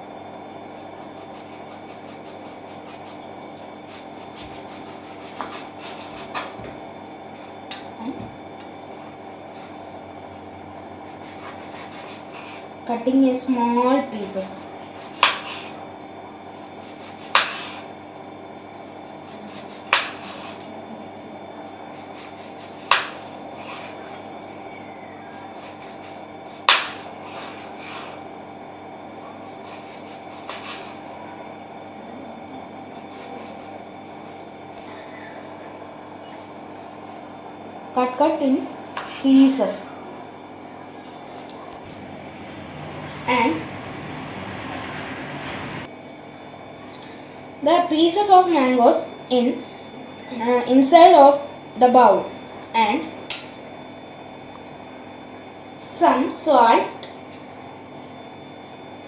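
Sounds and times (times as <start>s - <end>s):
high-pitched background whine: 0.0s - 59.0s
knife cutting fruit: 0.9s - 6.6s, 14.9s - 15.8s, 16.8s - 17.9s, 19.2s - 20.7s
high-pitched whine: 39.7s - 45.9s.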